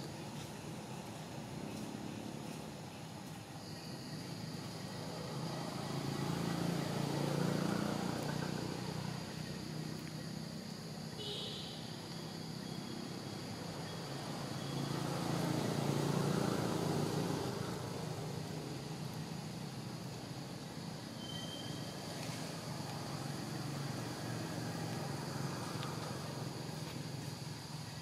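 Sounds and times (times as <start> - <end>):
motor vehicles passing: 4.2 - 10.9, 12.8 - 28.0
faint high chirp: 21.1 - 22.4.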